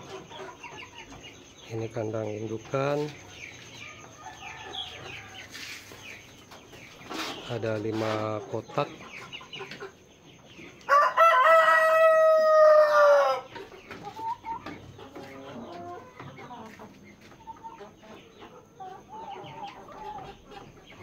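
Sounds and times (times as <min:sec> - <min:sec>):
hens clucking: 0:00.0 - 0:21.0
rooster crowing: 0:10.9 - 0:13.5.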